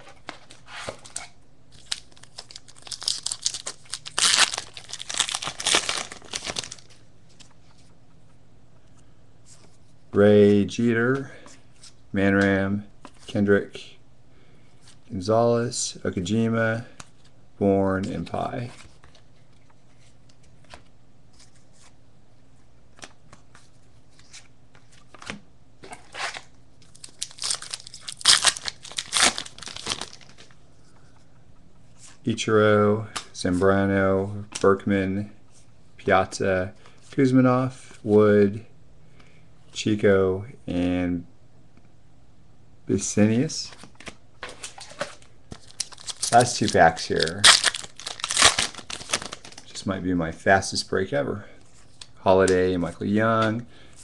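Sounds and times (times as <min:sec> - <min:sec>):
wrapper tearing and crinkling: 0:01.8 - 0:06.9, 0:26.1 - 0:30.4, 0:45.6 - 0:49.7.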